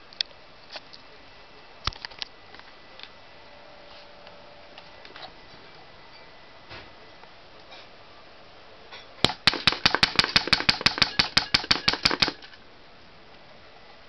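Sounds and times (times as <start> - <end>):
airsoft rifle full-auto burst: 9.2 - 12.6.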